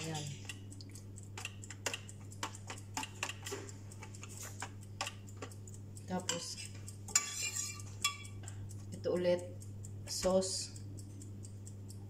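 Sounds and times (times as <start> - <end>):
spoon tapping on foil tray: 0.0 - 9.0
steady low hum: 0.0 - 12.0
spoon clattering in glass dish: 6.4 - 8.4.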